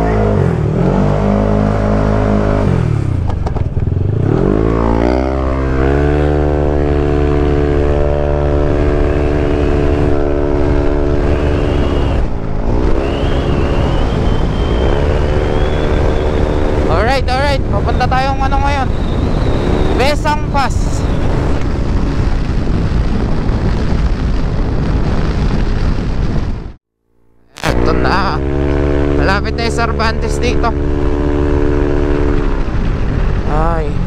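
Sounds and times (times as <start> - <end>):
scooter engine accelerating: 0.0 - 17.6, 27.5 - 34.0.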